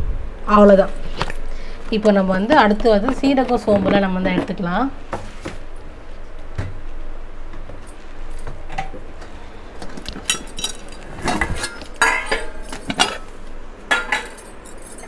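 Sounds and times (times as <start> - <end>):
kitchen utensils clinking: 9.9 - 15.0.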